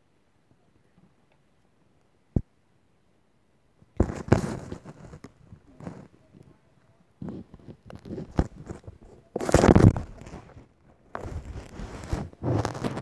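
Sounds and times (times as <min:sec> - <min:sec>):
microphone handling rustling: 0:04.0 - 0:06.5, 0:07.2 - 0:13.0.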